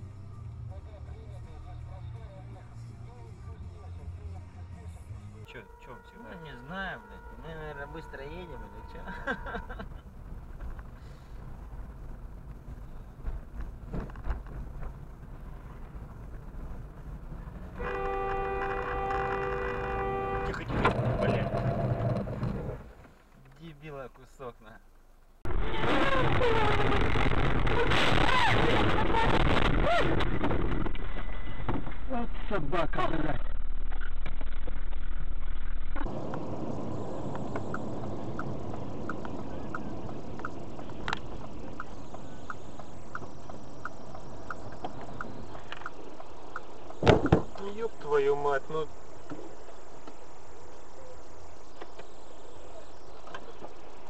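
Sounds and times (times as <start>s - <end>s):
car road rumble: 0.0s - 54.0s
car horn long blast: 5.5s - 9.9s, 17.8s - 20.9s
turn signal ticking: 37.3s - 46.7s.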